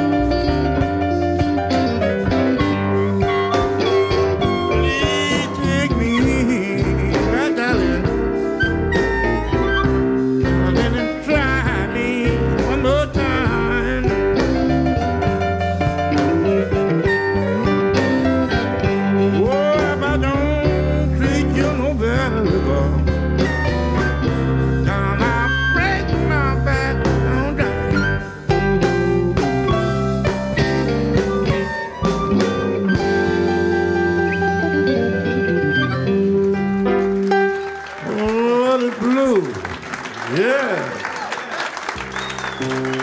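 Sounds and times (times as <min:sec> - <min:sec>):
harmonica: 0:00.0 - 0:11.2, 0:16.1 - 0:36.4
bass and drums: 0:00.0 - 0:37.7, 0:42.0 - 0:43.0
electric blues band playing: 0:00.0 - 0:43.0.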